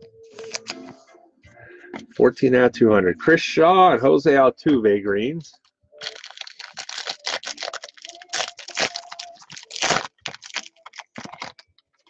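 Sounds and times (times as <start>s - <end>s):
foil wrapper crinkling and tearing: 0.4s - 0.8s, 6.0s - 12.0s.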